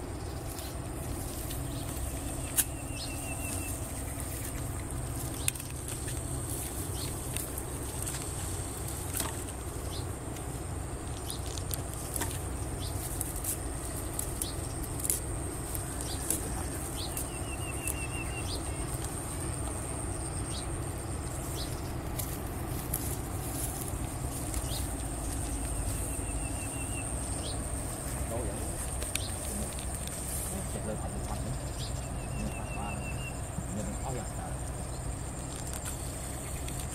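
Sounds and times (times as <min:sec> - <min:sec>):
steady high-pitched whine: 0:00.0 - 0:36.9
bird trill: 0:00.1 - 0:06.2, 0:15.9 - 0:22.0, 0:24.4 - 0:27.8, 0:31.1 - 0:35.1
rustling steps in vegetation: 0:00.4 - 0:20.4, 0:21.2 - 0:31.9.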